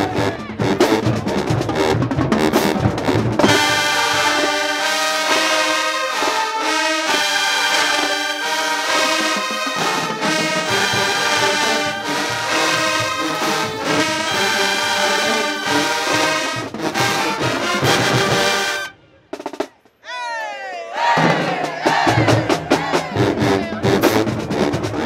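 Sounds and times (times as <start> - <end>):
brass band playing chords: 0.0 - 19.6, 21.1 - 25.0
drumline percussion: 0.0 - 20.0, 20.9 - 25.0
shout with gliding pitch: 20.0 - 21.1.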